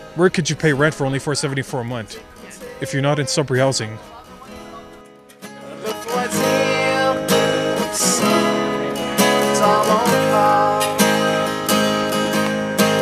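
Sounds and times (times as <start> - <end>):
acoustic guitar strumming: 0.0 - 13.0
man and girl singing: 1.9 - 3.7, 5.7 - 11.5.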